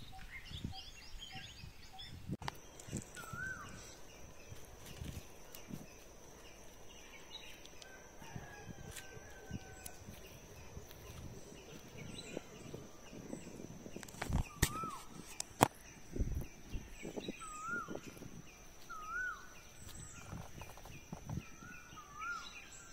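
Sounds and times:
bird calls: 0:00.0 - 0:22.9
faint rustles and knocks: 0:19.8 - 0:21.5.

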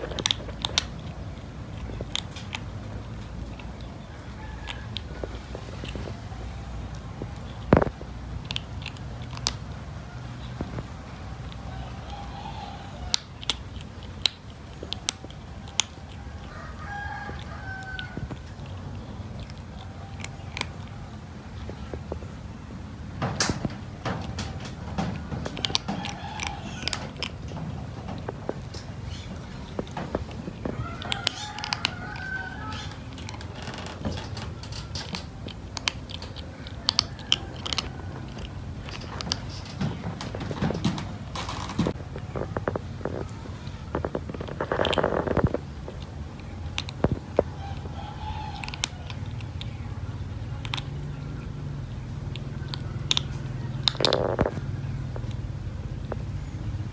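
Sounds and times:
kitten crunching dry kibble: 0:00.0 - 0:56.4.

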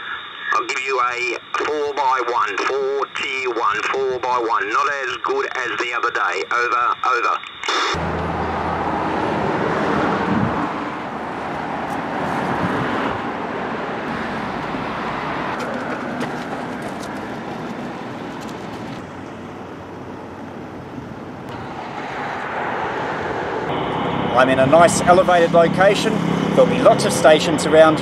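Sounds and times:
road traffic passing: 0:07.5 - 0:28.0.

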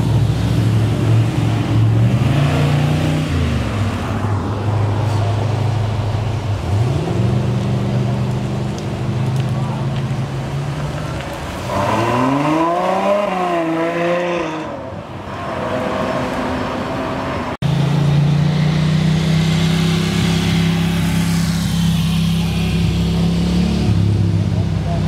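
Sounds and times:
car engine rumbling at low revs: 0:00.0 - 0:11.7.

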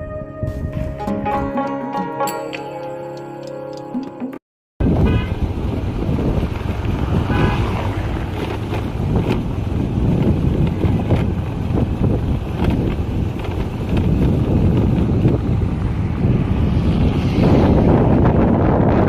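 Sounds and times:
wind rumble on microphone: 0:00.0 - 0:01.0, 0:04.8 - 0:19.0
instrumental music: 0:00.0 - 0:04.4
road traffic: 0:04.8 - 0:19.0
car horn toot: 0:04.9 - 0:05.5, 0:07.3 - 0:07.7.

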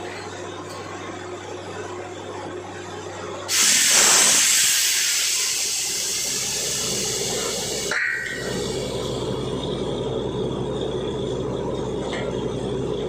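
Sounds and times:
compressed air hissing: 0:03.5 - 0:09.3
engine humming: 0:05.8 - 0:13.0.

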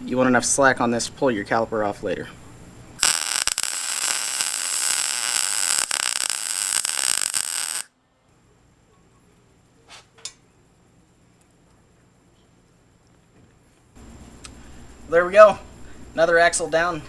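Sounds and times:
arc welding crackling hiss: 0:03.0 - 0:07.9.

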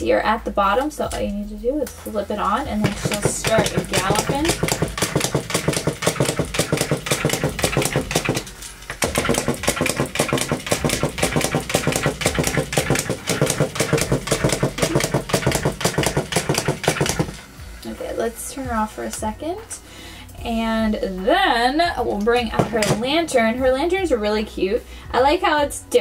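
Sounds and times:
toy motor clicking: 0:03.4 - 0:17.3.

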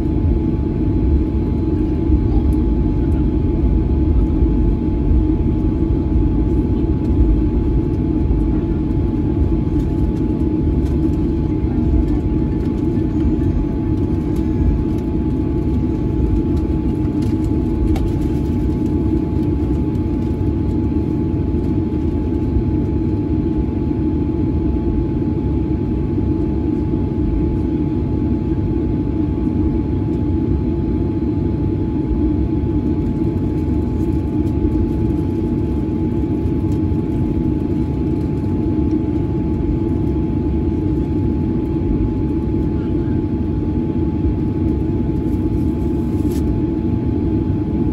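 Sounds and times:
jet engines low rumble: 0:00.0 - 0:47.9.

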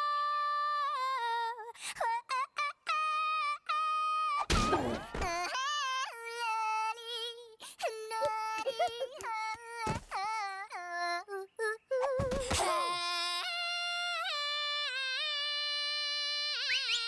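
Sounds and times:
high-pitched cartoon singing: 0:05.3 - 0:17.0
thumps and rustles: 0:09.9 - 0:10.2, 0:12.1 - 0:12.8.

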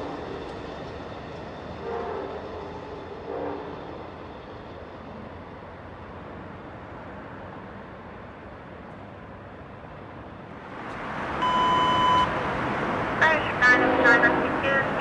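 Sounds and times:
electronic beep: 0:11.4 - 0:12.3.

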